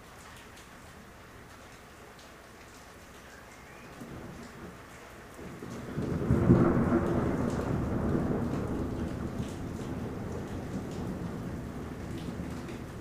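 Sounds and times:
steady rain: 0.0 - 13.0
thunder rumbling: 5.4 - 13.0.

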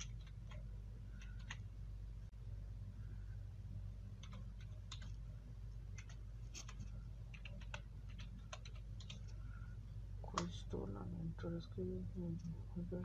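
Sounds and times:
steady low hum: 0.0 - 13.0
keyboard keys clicking: 1.2 - 1.6, 4.2 - 5.2, 6.0 - 9.2.

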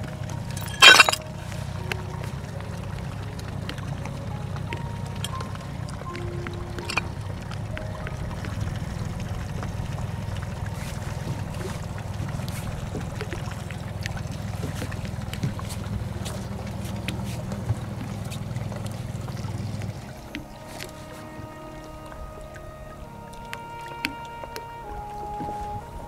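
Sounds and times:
steady low rumble: 0.0 - 20.7
gear knocking in aluminum boat: 4.6 - 20.5.

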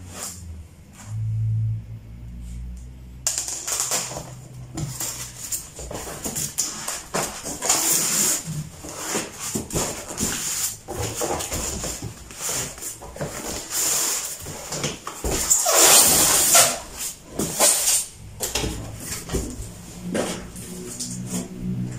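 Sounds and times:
styrofoam squeaking against cardboard: 15.4 - 18.1.

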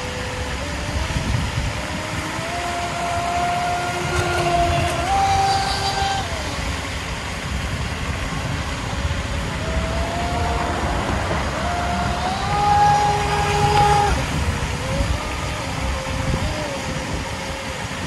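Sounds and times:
electric motor whining: 0.0 - 18.0.

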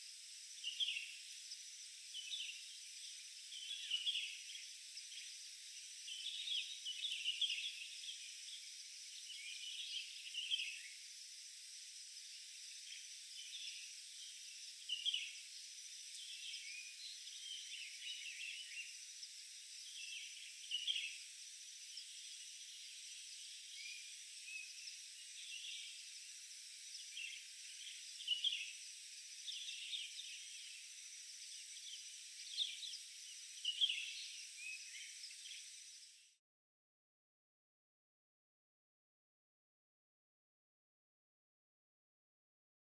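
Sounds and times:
high-pitched insect drone: 0.0 - 36.4
bird chirps: 2.2 - 5.3, 6.0 - 8.6, 9.2 - 11.0, 16.1 - 21.2, 26.9 - 28.8, 31.7 - 35.7.

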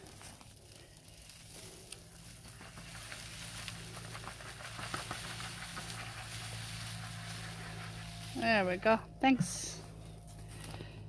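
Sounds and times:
low hum: 0.0 - 11.0
wood-chip mulch crackling: 0.0 - 11.0.

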